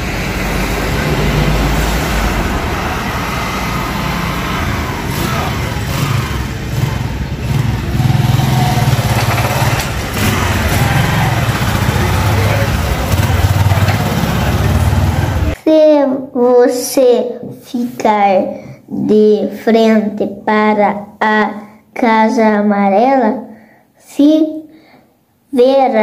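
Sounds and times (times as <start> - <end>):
small motorcycle engine revving: 0.0 - 15.6.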